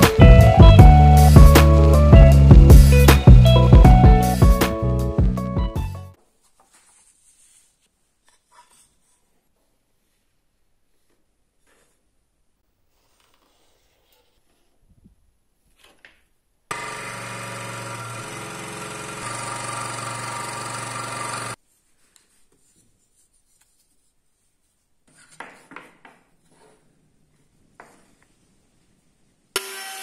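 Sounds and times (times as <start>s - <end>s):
electric power tool cutting wood: 16.7s - 21.6s, 29.6s - 30.0s.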